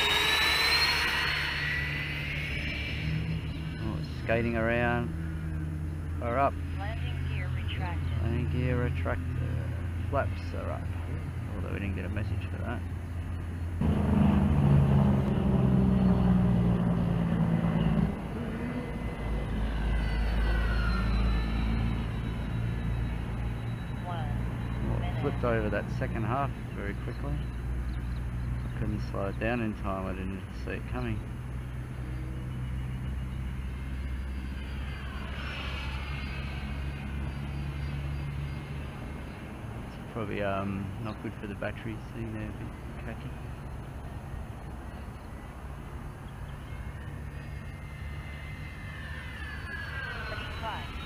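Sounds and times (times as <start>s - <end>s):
model jet fans whining: 0.0s - 7.4s, 16.8s - 27.0s
jet whine passing: 0.0s - 12.6s, 13.8s - 51.0s.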